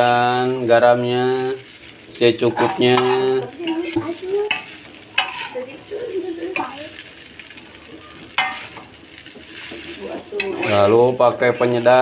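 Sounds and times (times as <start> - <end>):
rice sizzling in a wok: 0.0 - 12.0
metal spatula scraping a pan: 2.4 - 6.8, 8.3 - 12.0.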